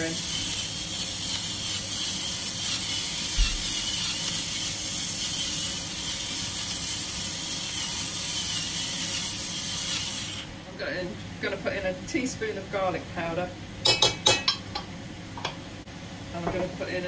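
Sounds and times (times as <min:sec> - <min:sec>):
pepper mill grinding: 0:00.0 - 0:10.5.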